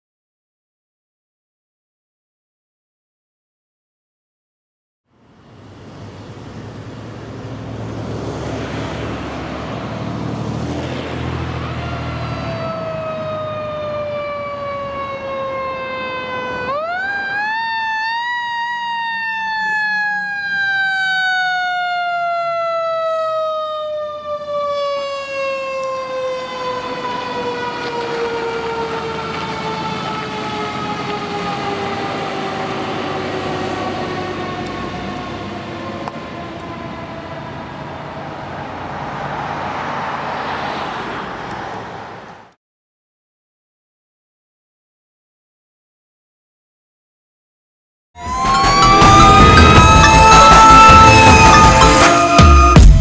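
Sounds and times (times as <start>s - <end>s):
truck engine rumble: 5.2s - 40.0s, 48.2s - 53.0s
fire engine siren: 7.5s - 41.3s, 48.2s - 53.0s.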